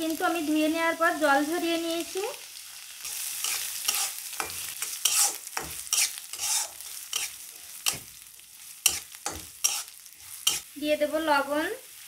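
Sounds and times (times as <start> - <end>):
light sizzle: 0.0 - 12.0
spatula scraping a pan: 3.0 - 10.8.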